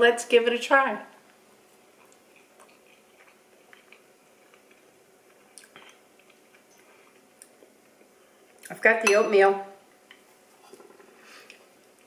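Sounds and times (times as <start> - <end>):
person chewing: 1.8 - 8.7.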